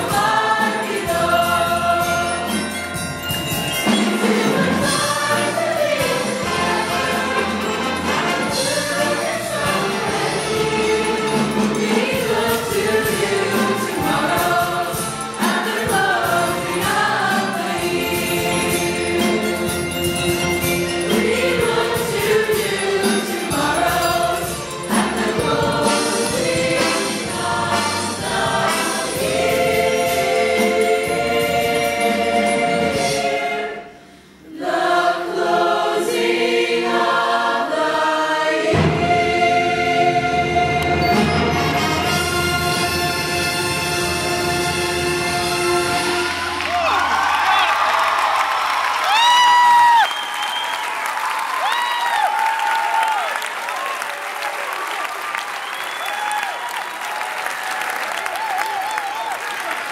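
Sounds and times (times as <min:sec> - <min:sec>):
choir singing: 0:00.0 - 0:02.8, 0:03.8 - 0:46.9.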